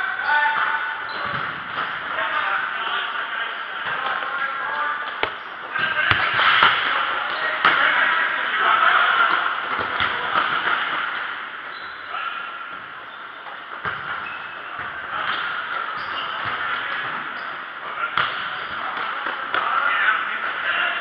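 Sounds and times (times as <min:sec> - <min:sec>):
shoes squeaking on court: 0:00.2 - 0:02.3, 0:05.0 - 0:06.6, 0:11.6 - 0:19.2.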